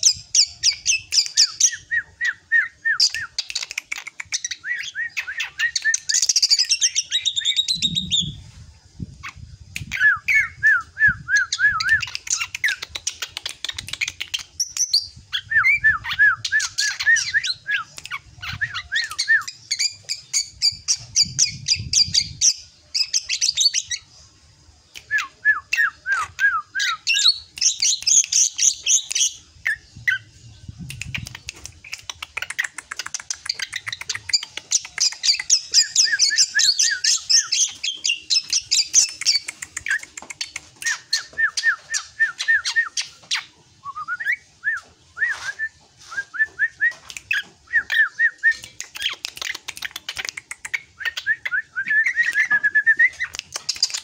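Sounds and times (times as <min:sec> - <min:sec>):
bird chattering and whistling: 0:00.0 - 0:08.4, 0:09.2 - 0:24.1, 0:25.0 - 0:54.0.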